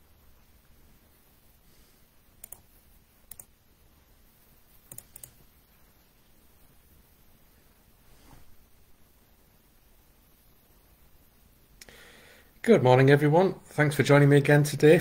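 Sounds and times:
room hum: 0.0 - 15.0
computer mouse clicks: 2.4 - 3.5, 4.8 - 5.4.

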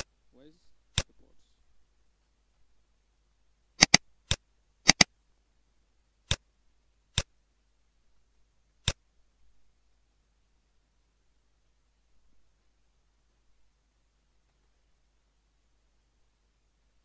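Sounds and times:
computer mouse clicks: 3.8 - 5.1, 7.1 - 7.3.

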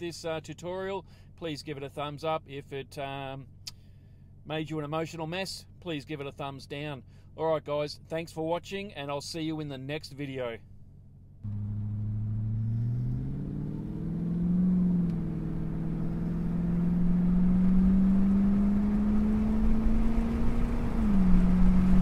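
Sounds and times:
low road rumble: 0.0 - 22.0
car engine accelerating: 11.4 - 22.0.

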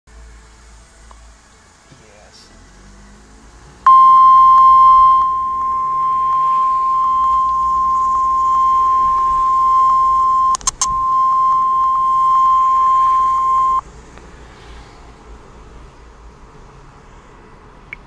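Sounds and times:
clicks: 3.9 - 13.8
steady alarm tone: 3.9 - 13.8.

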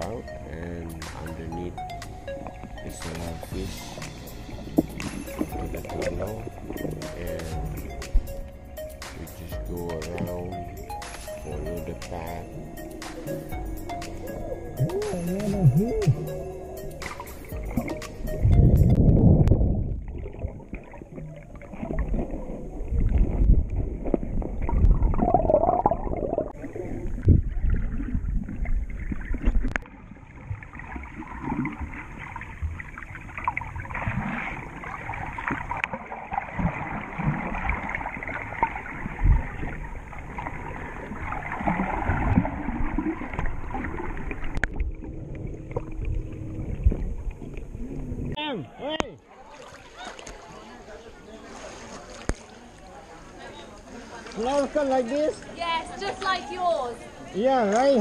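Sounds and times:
muffled underwater water sloshing: 0.0 - 48.4, 49.2 - 58.0
low thumps: 0.8 - 20.1.

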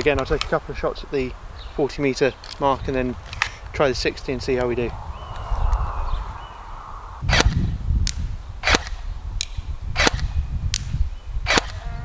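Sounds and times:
airsoft rifle shots: 7.3 - 7.6, 8.6 - 10.9, 11.5 - 11.8.

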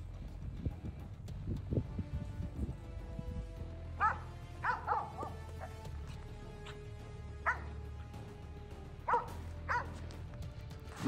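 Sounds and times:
quiet background music: 0.0 - 11.0.

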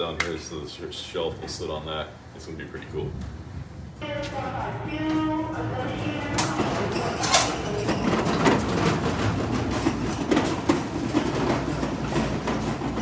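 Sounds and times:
cart rattling over concrete: 5.4 - 13.0.

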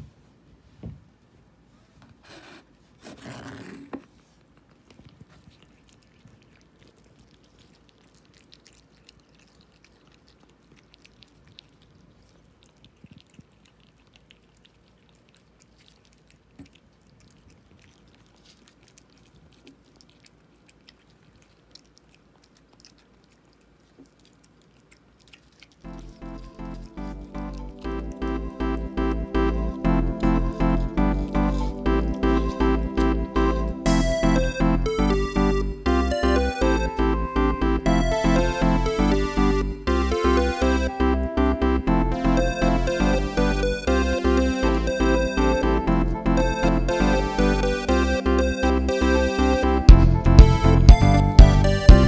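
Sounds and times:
rustling noise: 0.0 - 5.6
cats chewing and lapping: 3.3 - 41.6, 42.7 - 52.0.

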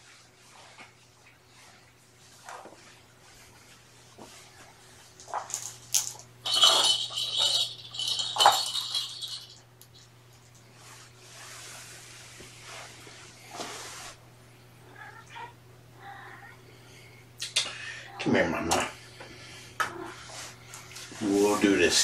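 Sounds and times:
balls rattling in plastic track: 5.2 - 10.6.

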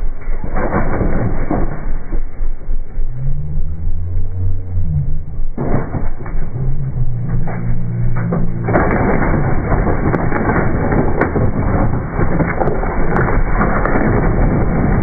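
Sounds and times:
tyre spinning on rock and dirt: 5.4 - 15.0.

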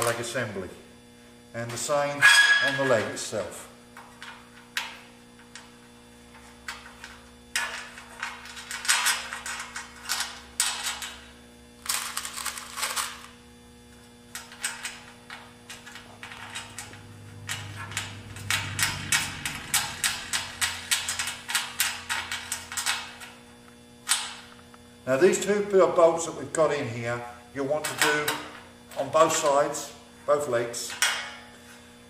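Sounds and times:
faint steady hum: 0.0 - 32.0
metal clicking and scraping: 14.3 - 23.3.

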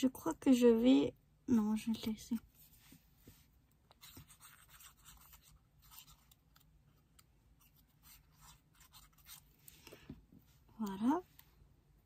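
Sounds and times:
thin card rustling and scratching: 3.9 - 9.8.

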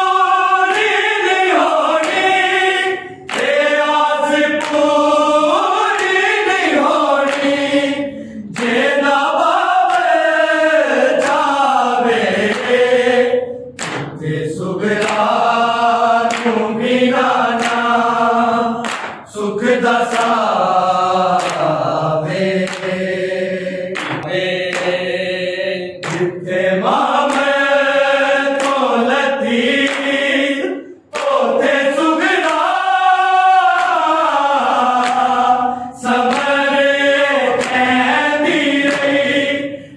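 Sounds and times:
men chanting in unison: 0.0 - 39.9.

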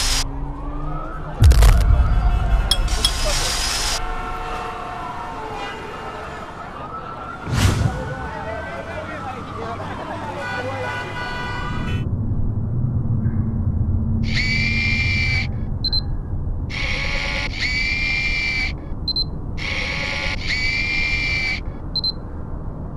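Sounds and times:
low rumble: 0.6 - 4.1, 12.0 - 16.8.

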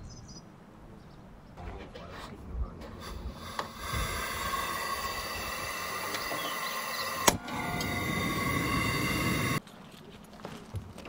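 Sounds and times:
stove burner hissing: 2.8 - 9.6.

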